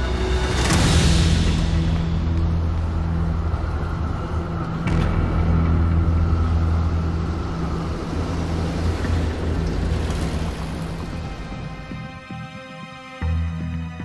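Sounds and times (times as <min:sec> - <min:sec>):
low droning film score: 0:00.0 - 0:14.0.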